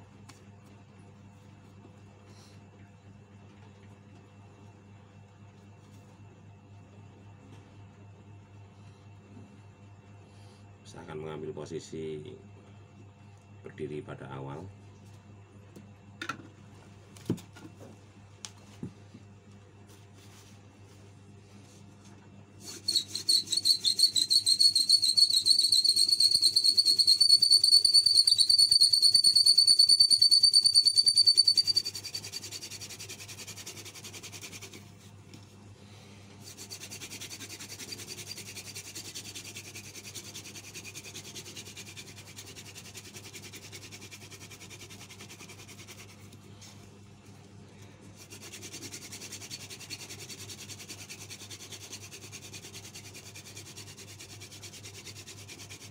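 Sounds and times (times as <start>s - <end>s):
fire drill spindle squealing and grinding: 22.7s - 32.3s.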